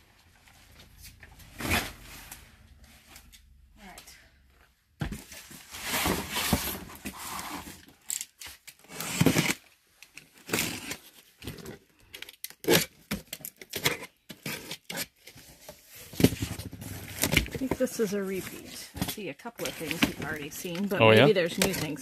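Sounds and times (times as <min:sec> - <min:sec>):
cardboard scraping and rustling: 0:05.1 - 0:08.0, 0:13.8 - 0:20.8
box cutter slitting tape: 0:08.8 - 0:09.6, 0:10.4 - 0:11.1.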